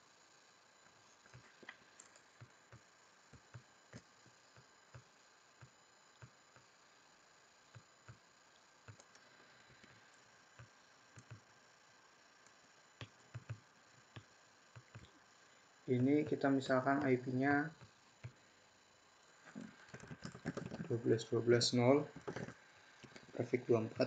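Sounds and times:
computer mouse clicking: 1.2 - 6.7, 8.8 - 10.0, 10.6 - 11.4, 12.4 - 15.2, 19.6 - 20.9, 22.2 - 23.3.

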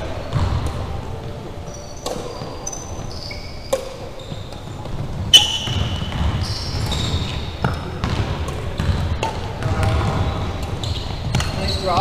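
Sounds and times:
shoes squeaking: 0.2 - 12.0
racket striking shuttlecock: 1.9 - 7.0, 7.6 - 10.0.

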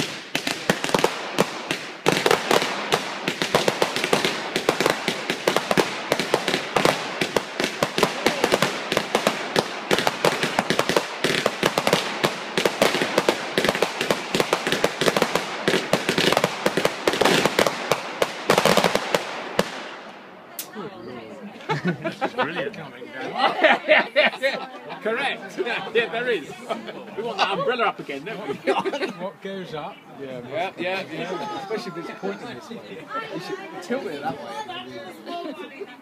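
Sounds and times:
fireworks bangs and crackles: 0.0 - 20.3.

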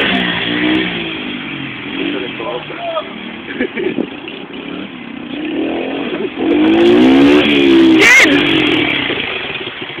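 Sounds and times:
dirt bike engine revving: 0.0 - 10.0.

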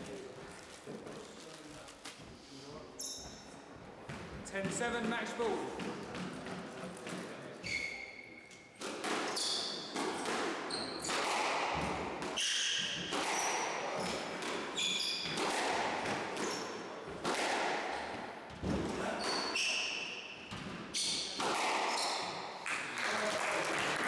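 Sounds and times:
shoes squeaking on wooden floor: 0.0 - 5.3, 6.4 - 11.4, 12.3 - 15.4, 18.5 - 22.5
squash ball hitting rackets and walls: 4.1 - 22.6.

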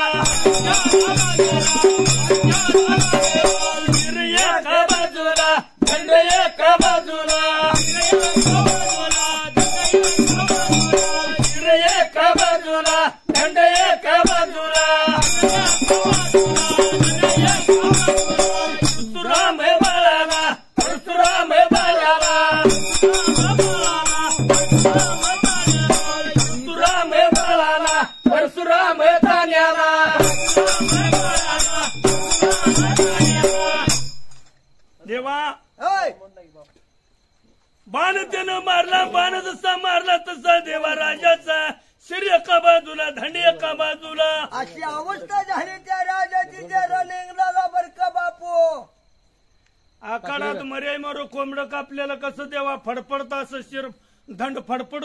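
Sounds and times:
barrel drum beat: 0.0 - 28.2, 30.1 - 34.3
man chanting folk song: 0.0 - 34.0, 37.9 - 48.9, 50.0 - 55.0
jingling hand percussion: 0.0 - 34.5.

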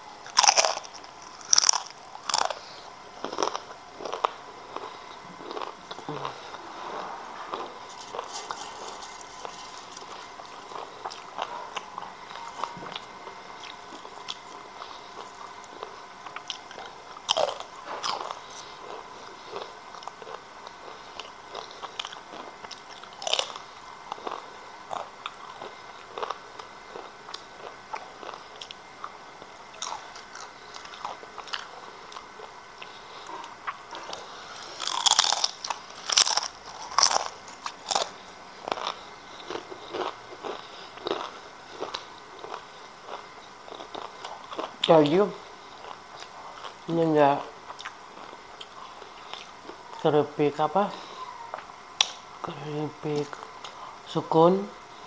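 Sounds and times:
chips crunching: 0.2 - 6.7, 7.5 - 29.2, 29.8 - 45.1.

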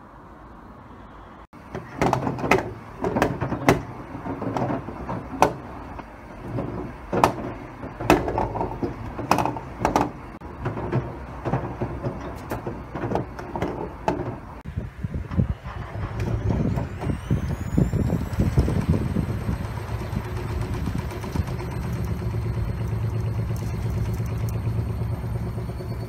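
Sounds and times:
washing machine humming: 15.6 - 26.0.

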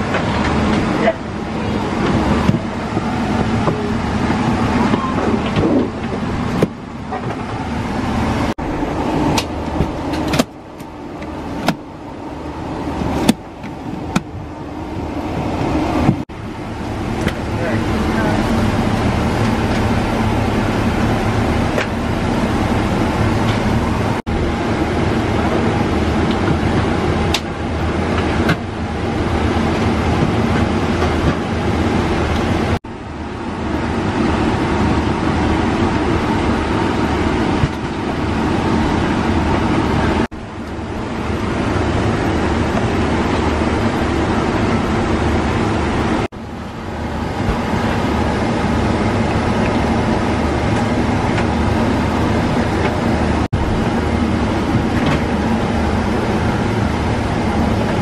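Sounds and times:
airliner cabin air rush: 0.0 - 58.0
low hum: 0.0 - 58.0.

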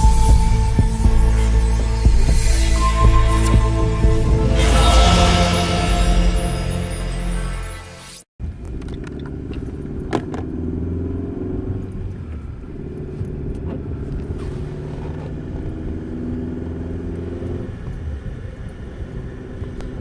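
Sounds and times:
car engine and road noise: 8.4 - 20.0.

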